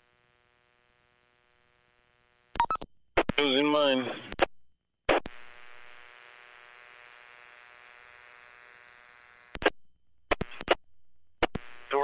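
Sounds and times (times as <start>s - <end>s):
steady buzzing hum: 0.0s - 2.6s, 5.3s - 9.6s
radio static burst: 2.6s - 4.5s, 10.3s - 10.8s, 11.6s - 12.0s.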